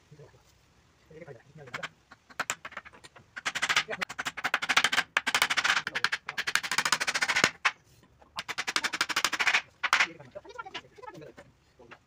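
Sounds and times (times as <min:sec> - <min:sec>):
hammer driving nails into wood: 0:01.8 - 0:07.8, 0:08.4 - 0:10.1.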